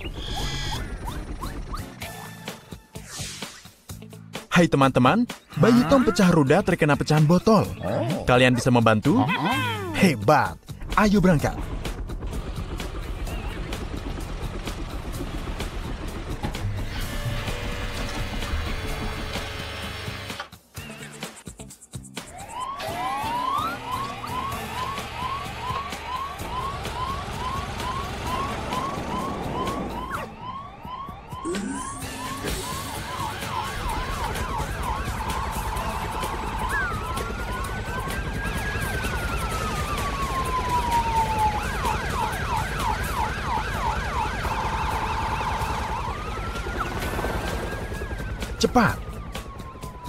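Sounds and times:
cartoon sirens: 0.0 - 2.7, 5.5 - 8.4, 9.2 - 10.2, 22.2 - 50.0.

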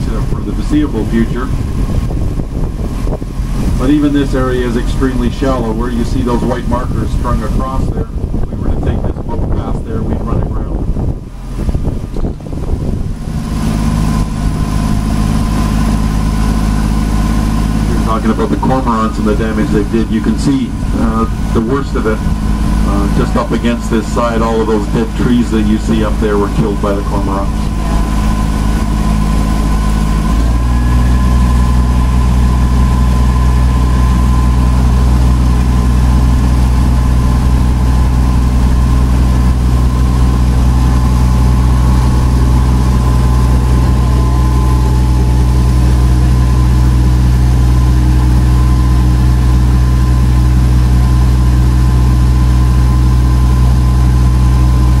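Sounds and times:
boat engine drone: 0.0 - 55.0.

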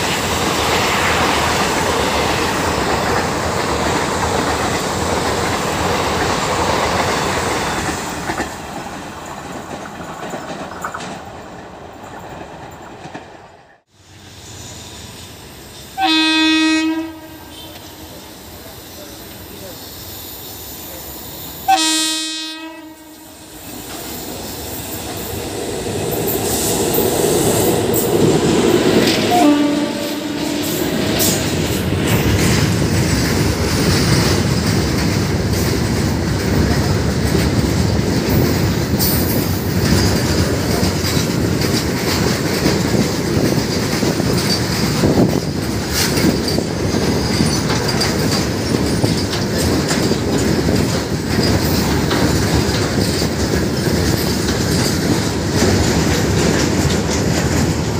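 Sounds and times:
train wheels clattering over rail joints: 0.0 - 13.6, 23.7 - 57.9
locomotive horn blasts: 16.0 - 18.1, 21.7 - 23.4, 29.3 - 30.8.

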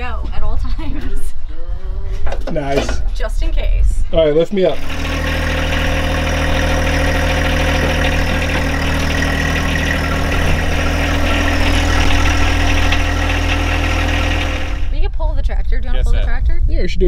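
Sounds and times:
tractor engine running: 4.7 - 15.6.

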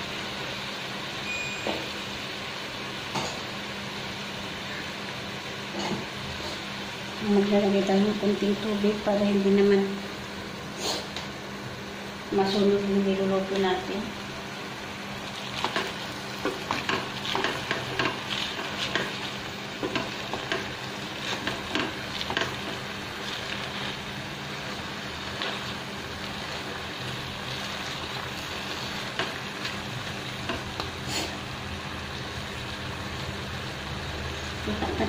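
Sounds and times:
food sizzling: 0.0 - 35.0
wooden spatula scraping pot: 15.5 - 24.2.

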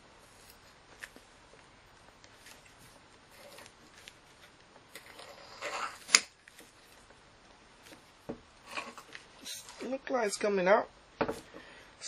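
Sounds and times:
metal grating and scraping: 5.0 - 6.0.

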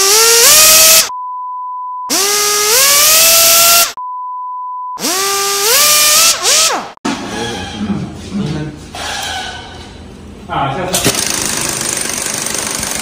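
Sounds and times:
power tool motor speeding up: 0.0 - 1.1, 2.1 - 4.0, 5.0 - 7.0
pure beep tones: 1.1 - 2.1, 4.0 - 5.0.

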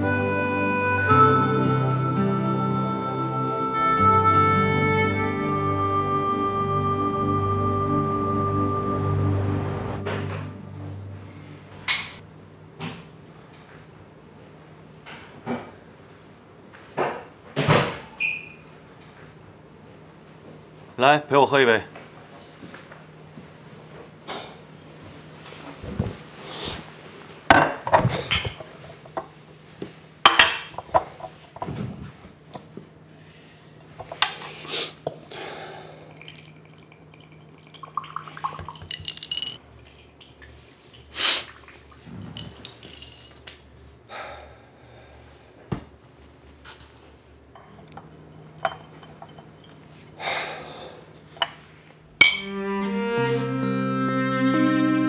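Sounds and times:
slow cello string music: 0.0 - 11.9, 52.4 - 55.0
liquor pouring into glass: 36.2 - 40.5
glass clinking on tabletop: 48.6 - 49.8, 52.2 - 52.5.

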